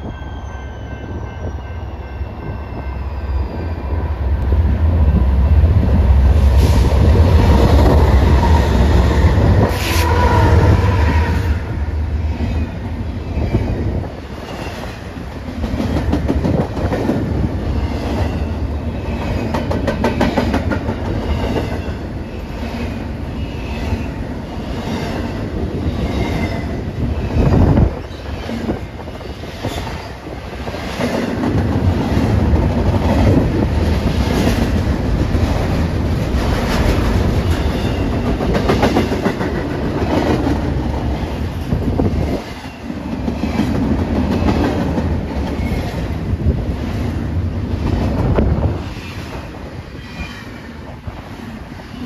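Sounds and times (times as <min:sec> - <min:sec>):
diesel locomotive rumbling: 0:00.3 - 0:50.0
train wheels clacking on rails: 0:13.4 - 0:23.1, 0:23.7 - 0:50.6.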